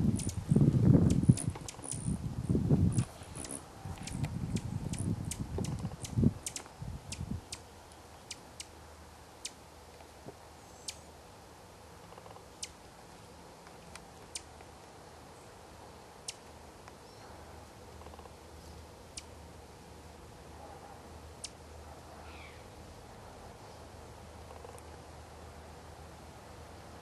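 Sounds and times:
faint steady background noise: 0.0 - 27.0
sharp high ticks: 0.1 - 0.4, 3.0 - 7.6.

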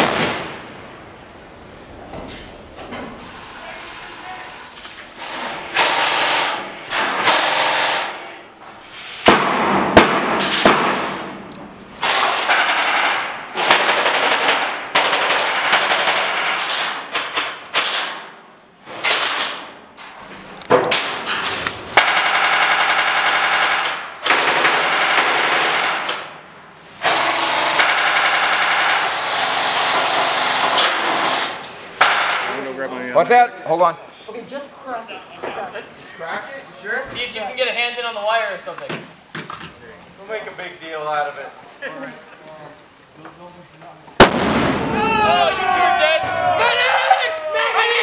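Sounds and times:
airsoft rifles firing bursts: 5.7 - 8.2, 12.0 - 17.0, 22.0 - 26.1, 27.0 - 32.5.

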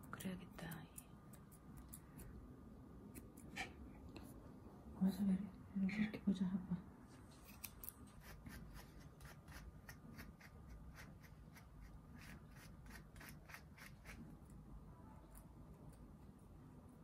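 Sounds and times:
scissors snipping fur: 0.0 - 2.4, 3.1 - 3.7, 7.4 - 14.2.

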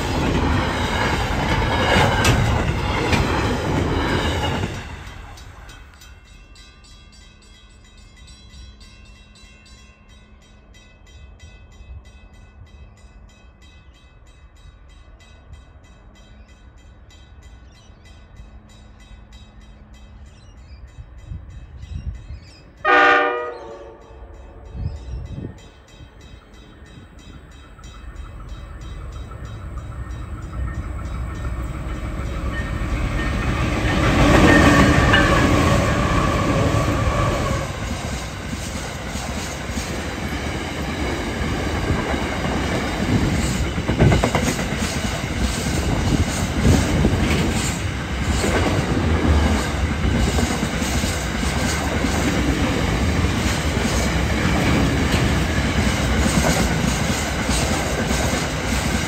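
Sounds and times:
freight train rumble: 0.0 - 59.0
train horn blast: 22.8 - 25.2.

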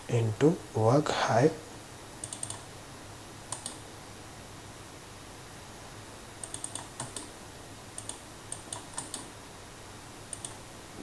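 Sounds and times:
faint steady hum: 0.0 - 11.0
keyboard keys clicking: 2.2 - 2.6, 3.5 - 3.8, 6.4 - 7.3, 8.0 - 9.3, 10.3 - 10.6.

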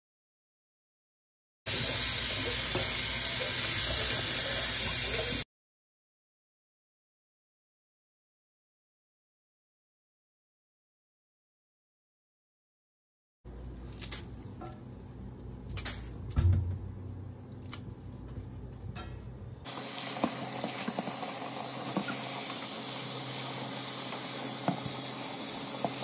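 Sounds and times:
faucet running into metal pot: 1.7 - 5.4, 19.7 - 26.0.

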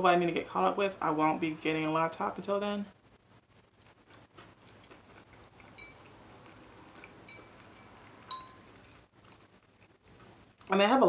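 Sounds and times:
metal fork clinking on a dish: 5.7 - 6.1, 7.3 - 8.6.

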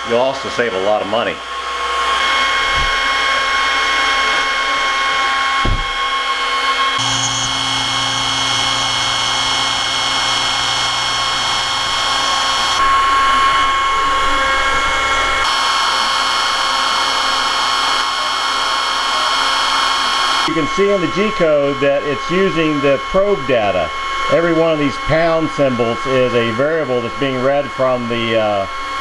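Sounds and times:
router spindle whine: 0.0 - 29.0
hiss of wood cutting: 6.7 - 12.8.

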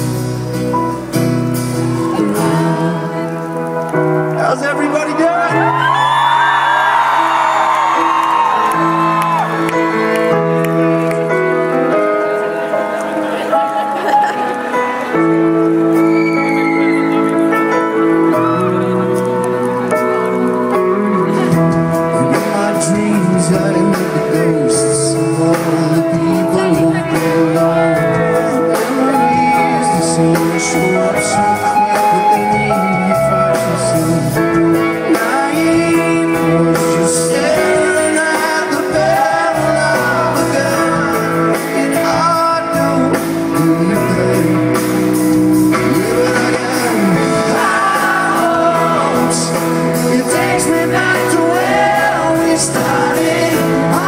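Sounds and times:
live rock band playing: 0.0 - 54.0
man singing lead vocal: 1.9 - 7.2, 20.5 - 54.0.

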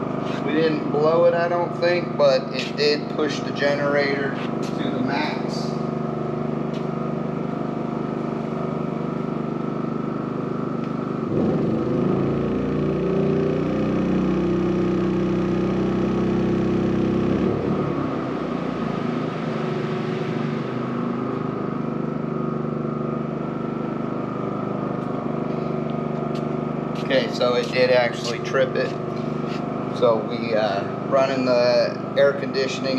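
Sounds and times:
portable generator engine running: 0.0 - 32.9.

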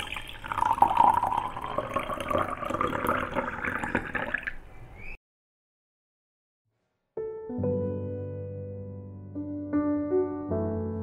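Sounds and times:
water pouring into glass jar: 0.0 - 4.7.

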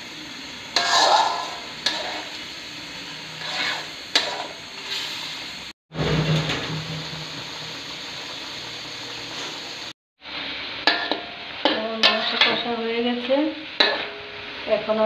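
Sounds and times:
chicken sizzling in a pot: 0.0 - 15.0
wooden spatula scraping a pot: 0.8 - 2.3, 3.4 - 5.1, 12.0 - 12.6.

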